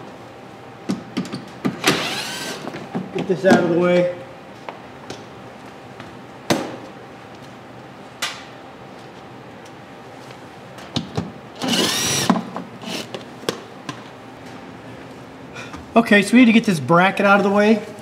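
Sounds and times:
power tool whir: 1.8 - 2.7, 11.6 - 13.2.

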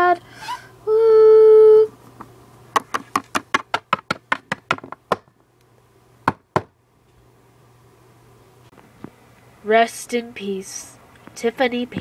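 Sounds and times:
sharp knocks: 2.8 - 5.3, 6.2 - 6.7.

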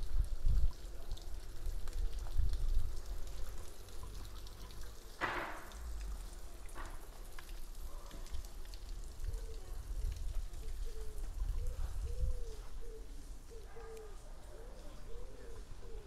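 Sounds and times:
fountain water falling into basin: 0.0 - 12.3.

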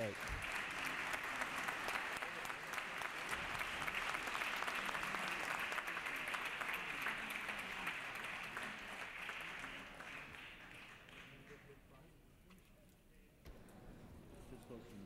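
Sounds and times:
crowd applauding: 0.0 - 11.7.

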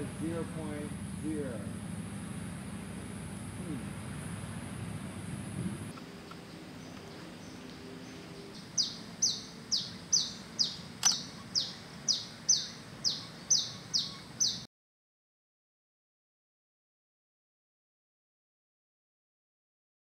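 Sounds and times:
bird calling high notes: 0.0 - 14.7
sharp click: 11.0 - 11.3.

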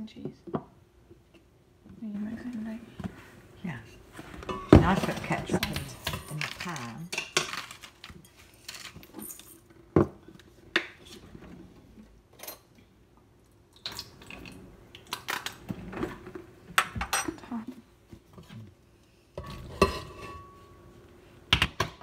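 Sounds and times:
pans and utensils clattering: 4.2 - 9.7, 19.4 - 20.8.

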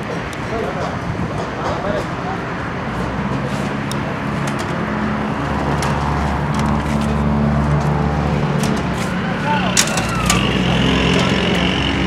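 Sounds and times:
road traffic: 0.0 - 12.0
vehicle engine running: 3.2 - 12.0.

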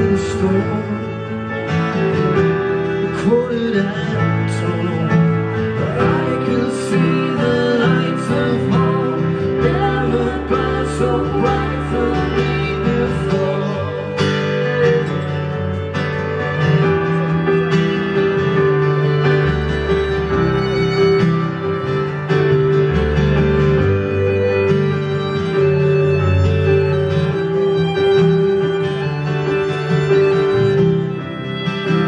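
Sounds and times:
bowed fiddle: 0.0 - 32.0
keyboard: 0.0 - 32.0
strummed acoustic guitar: 0.0 - 32.0
voices singing: 5.7 - 15.2.

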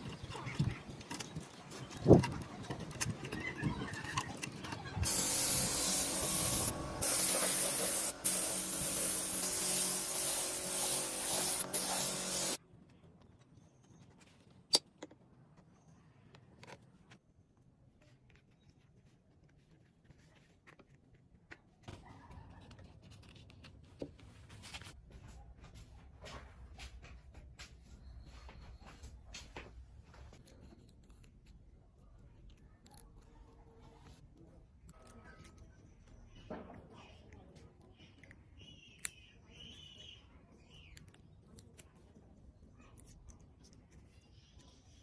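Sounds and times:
loud spraying hiss: 5.1 - 12.6.

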